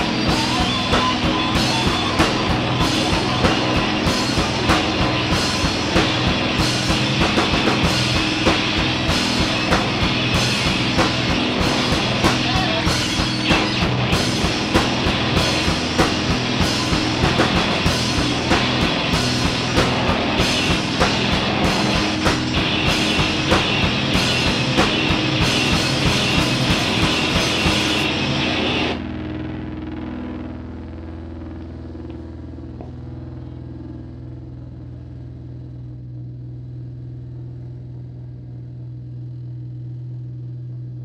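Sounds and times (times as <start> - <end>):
drum kit beat with cymbals: 0.0 - 29.0
effects-processed instruments: 0.0 - 41.0
electric bass: 0.0 - 41.0.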